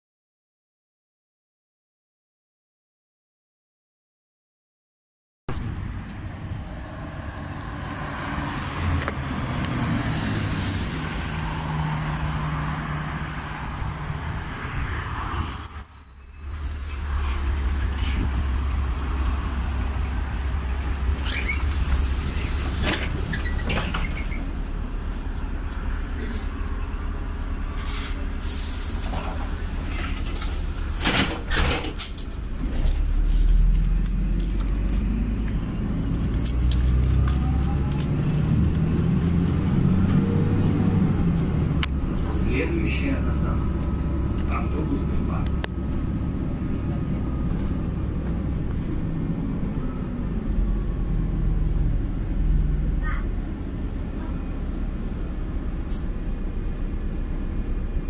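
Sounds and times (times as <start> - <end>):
bus engine rumbling: 5.5 - 58.0
compressed air hiss: 27.8 - 31.0.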